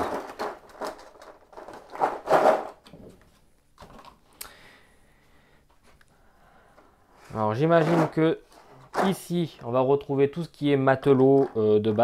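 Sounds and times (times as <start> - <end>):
plastic rustling: 0.0 - 2.9.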